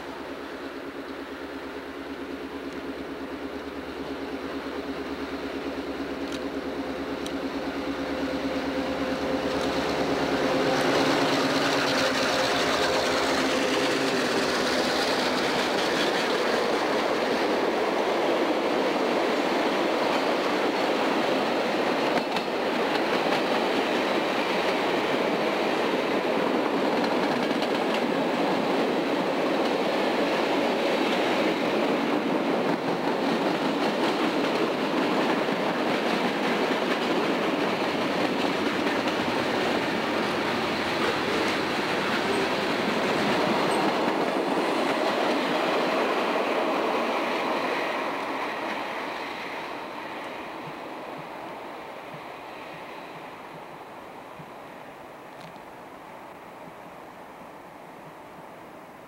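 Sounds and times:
diesel locomotive engines droning: 0.0s - 58.9s
freight cars rolling by: 6.4s - 17.6s.

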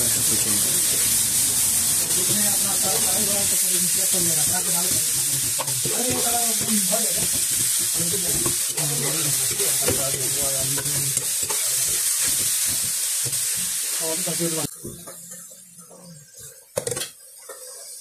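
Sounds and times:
onions sizzling in a pan: 0.0s - 18.0s
metal spoon scraping a pan: 2.2s - 13.8s.

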